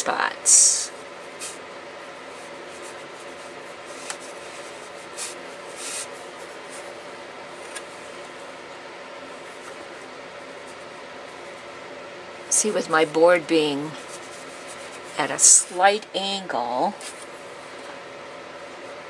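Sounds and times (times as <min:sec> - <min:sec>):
room hum: 0:00.0 - 0:19.0
brush swishing on paper: 0:02.3 - 0:07.0, 0:13.8 - 0:15.6.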